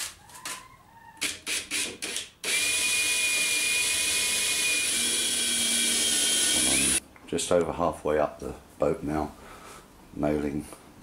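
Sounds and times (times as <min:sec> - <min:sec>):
cordless drill drilling wood: 0:01.5 - 0:07.0.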